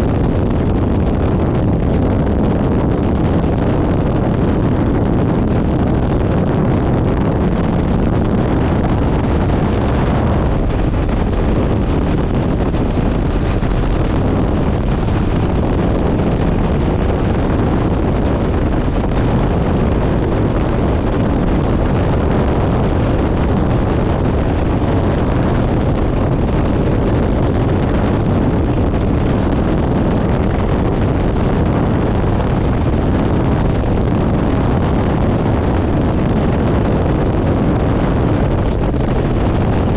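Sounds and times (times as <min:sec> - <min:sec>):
wind rushing over microphone: 0:00.0 - 0:39.9
helicopter engine and rotor: 0:06.6 - 0:21.5.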